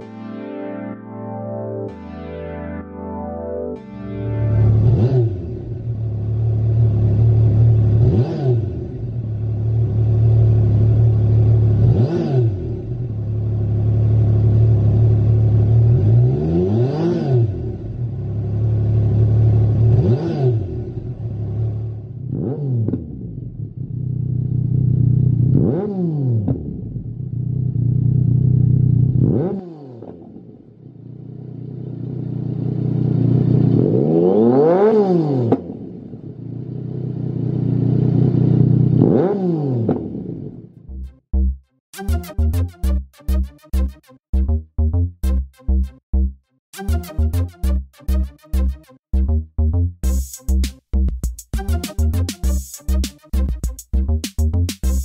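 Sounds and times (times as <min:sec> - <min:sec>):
motorcycle engine revving: 0:04.7 - 0:41.0.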